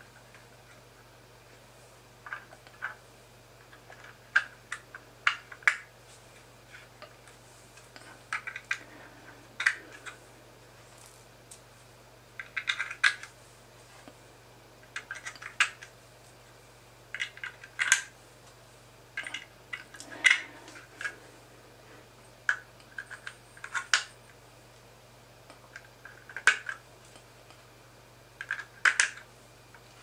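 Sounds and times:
plastic parts clicking together: 0:17.1 - 0:18.1, 0:28.4 - 0:29.2.

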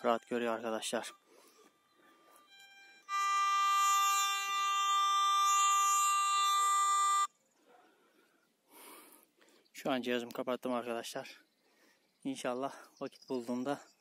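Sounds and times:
metal detector buzzy tone: 0:02.3 - 0:07.3.

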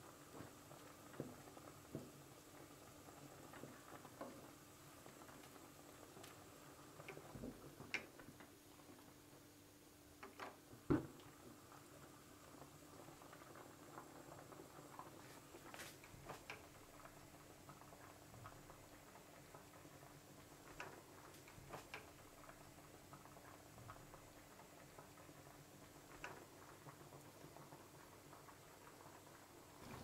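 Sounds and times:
water boiling and bubbling: 0:00.0 - 0:30.0
wooden spatula clicking in pan: 0:16.3 - 0:16.7, 0:20.6 - 0:22.2, 0:26.1 - 0:26.6.

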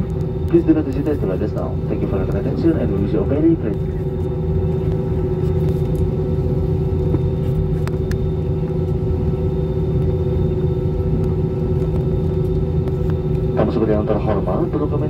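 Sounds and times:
airliner cabin engine drone: 0:00.0 - 0:15.0.

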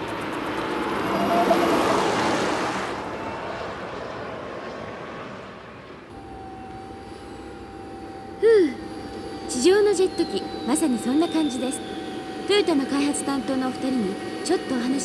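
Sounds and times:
turbine car driving past: 0:00.0 - 0:15.0
steady high whine: 0:05.5 - 0:15.0.

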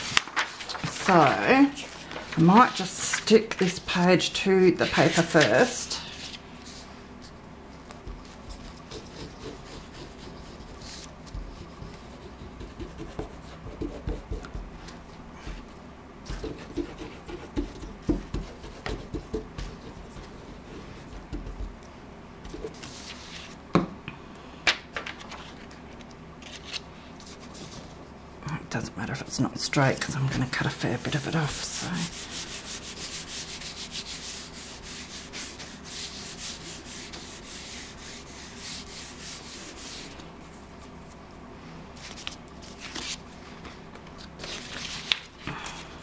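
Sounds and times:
paper rustling: 0:00.0 - 0:03.7, 0:04.8 - 0:08.9, 0:22.6 - 0:23.6, 0:25.0 - 0:28.0, 0:42.0 - 0:45.9.

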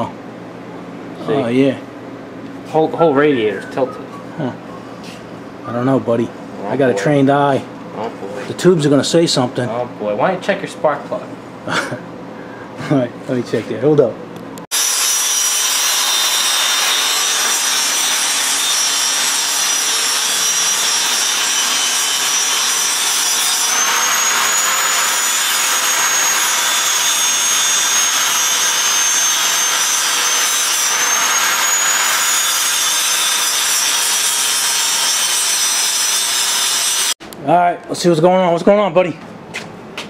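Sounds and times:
angle grinder grinding steel: 0:14.7 - 0:37.2.

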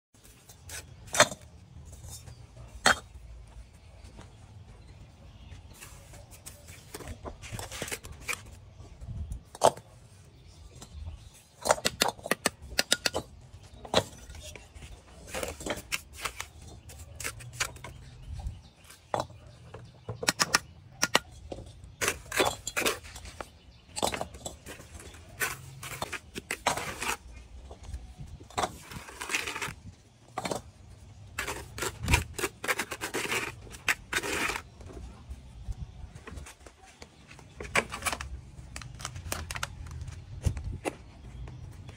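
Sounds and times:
trowel scraping mortar: 0:11.2 - 0:19.3, 0:20.4 - 0:27.5, 0:28.5 - 0:34.8
trowel tapping bricks: 0:11.6 - 0:14.6.

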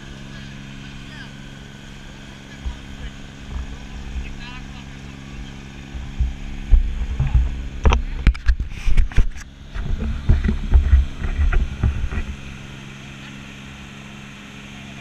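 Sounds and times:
boat engine humming: 0:00.0 - 0:15.0
wind buffeting: 0:01.3 - 0:12.9.

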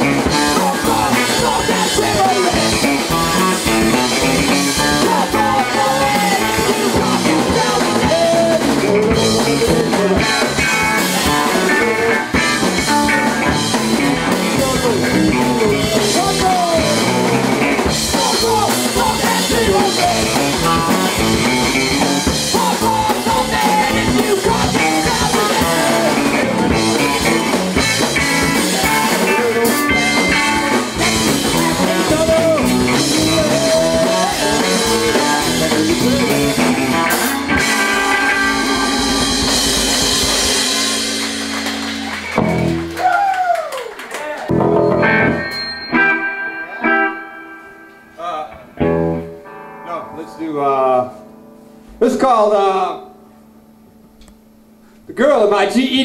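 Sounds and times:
person singing: 0:00.0 - 0:39.6
punk rock band playing: 0:00.0 - 0:43.3, 0:44.0 - 0:54.8.

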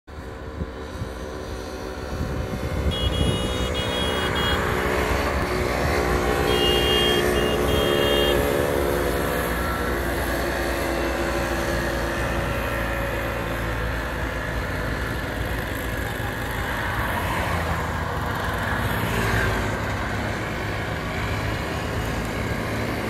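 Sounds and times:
small engines driving past: 0:00.1 - 0:23.0
horn beeping: 0:02.7 - 0:05.4, 0:06.3 - 0:09.9.

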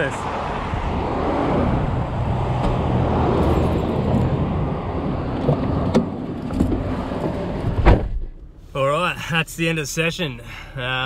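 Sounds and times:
cars driving past: 0:00.0 - 0:08.8.

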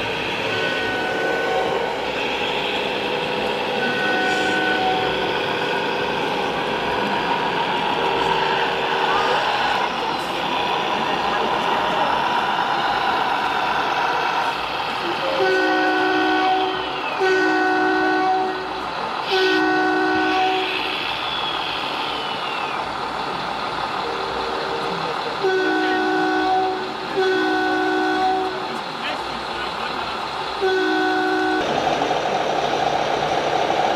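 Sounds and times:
two-tone air horn blasts: 0:00.5 - 0:02.4, 0:03.8 - 0:05.2, 0:15.4 - 0:18.7, 0:19.3 - 0:20.9, 0:25.4 - 0:28.6, 0:30.6 - 0:31.7.

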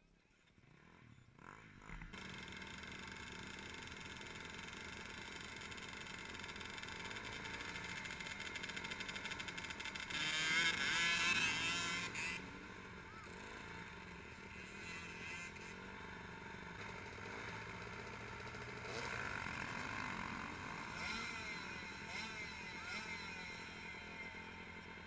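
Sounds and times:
dirt bike engines droning: 0:00.0 - 0:25.0
engine revving loudly: 0:09.5 - 0:12.5, 0:18.6 - 0:25.0.

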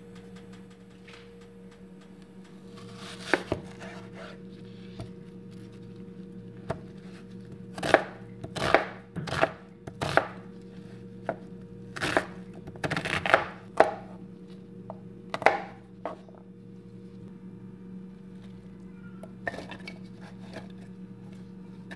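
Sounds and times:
knife chopping on plastic board: 0:03.1 - 0:03.9, 0:07.8 - 0:10.4, 0:12.0 - 0:14.1, 0:15.3 - 0:16.2.

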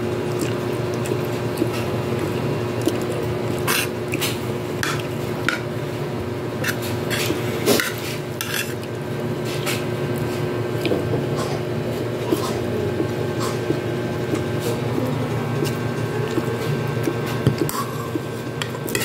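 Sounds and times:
steady background hum: 0:00.0 - 0:19.0
metal spoon scraping a plate: 0:06.6 - 0:08.8.

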